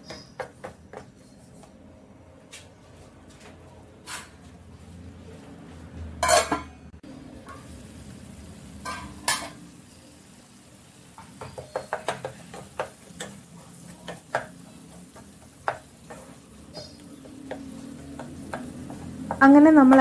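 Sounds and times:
soft sizzle: 0:06.2 - 0:20.0
spatula clicking against pan: 0:11.2 - 0:20.0
spatula scraping a frying pan: 0:11.4 - 0:19.4.

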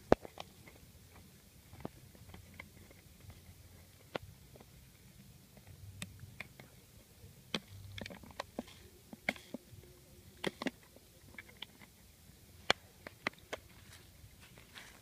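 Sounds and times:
small clicks and crackles: 0:00.0 - 0:06.8, 0:07.5 - 0:15.0
hands handling gear on dry grass: 0:12.6 - 0:15.0.

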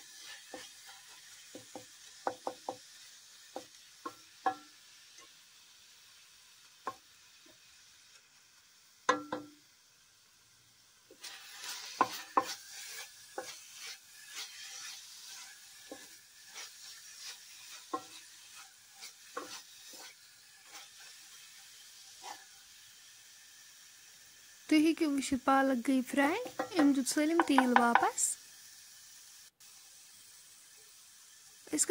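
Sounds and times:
spinach sizzling in oil: 0:00.0 - 0:31.9
spatula scraping and knocking pot: 0:11.1 - 0:21.1, 0:26.4 - 0:28.1.

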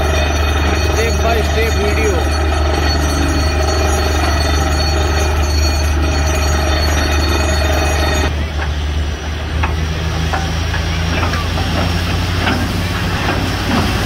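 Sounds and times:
drilling rig engine low drone: 0:00.0 - 0:14.0
mechanical whine: 0:00.0 - 0:14.0.

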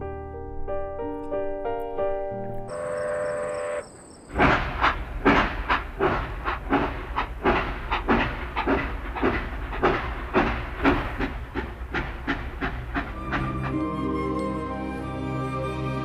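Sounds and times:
train wheels clattering: 0:04.3 - 0:14.0.

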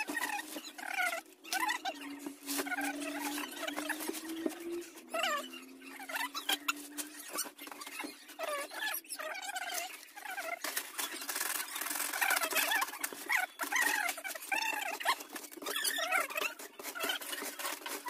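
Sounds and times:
cloth bundles rustling and knocking: 0:00.0 - 0:08.8
small animal squeaking: 0:00.0 - 0:18.0.

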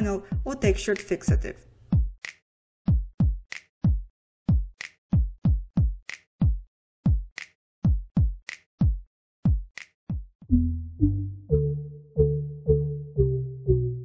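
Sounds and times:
drum machine beat: 0:00.0 - 0:10.5
synth bass notes: 0:10.5 - 0:14.0.

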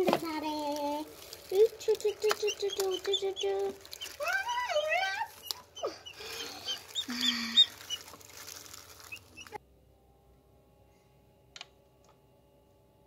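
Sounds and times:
plastic gloves rustling: 0:00.0 - 0:09.6
incubator hum: 0:00.0 - 0:10.8
chick peeping: 0:01.9 - 0:08.3, 0:09.0 - 0:09.6.

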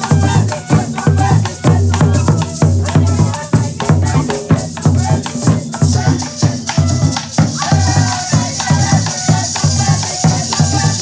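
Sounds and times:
maraca shaking: 0:00.0 - 0:11.0.

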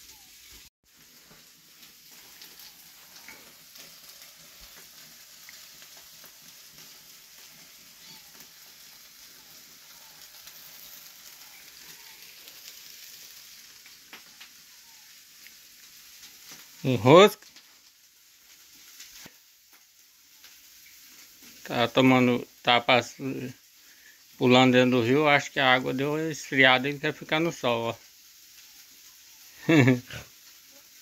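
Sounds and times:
fish sizzling over fire: 0:00.0 - 0:31.0
wood fire crackling: 0:00.0 - 0:31.0.

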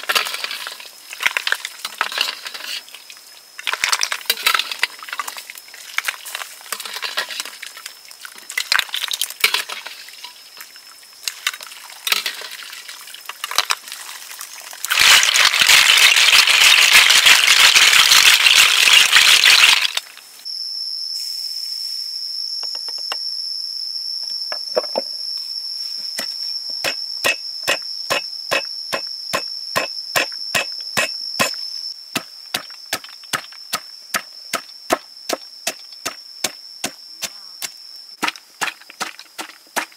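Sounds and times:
high-pitched insect drone: 0:14.4 - 0:39.0.

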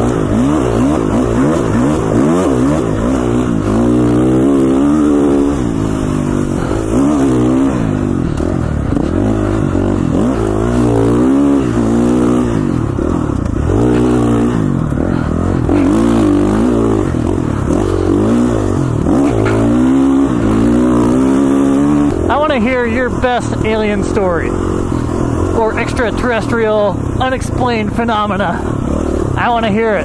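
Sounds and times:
dirt bike engine revving: 0:00.0 - 0:30.0.

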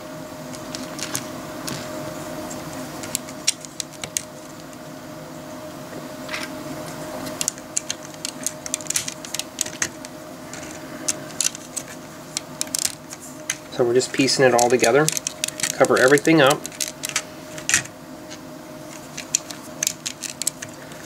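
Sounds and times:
loose plastic pieces clattering: 0:00.6 - 0:01.9, 0:07.3 - 0:17.9, 0:18.9 - 0:21.0
plastic bricks clicking together: 0:07.4 - 0:09.9, 0:12.6 - 0:13.6.

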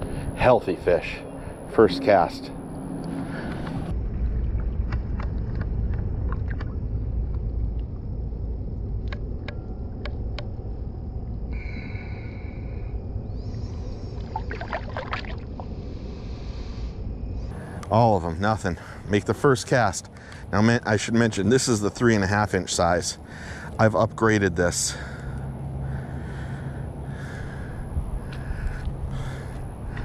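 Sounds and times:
low rumble: 0:00.0 - 0:20.2, 0:24.9 - 0:30.0
shallow water splashing: 0:14.1 - 0:15.8.

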